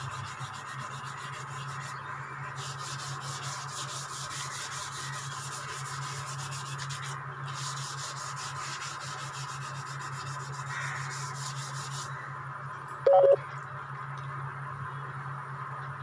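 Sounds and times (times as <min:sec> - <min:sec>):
sandpaper rubbing: 0:00.0 - 0:12.1
short loud beep: 0:13.1 - 0:13.4.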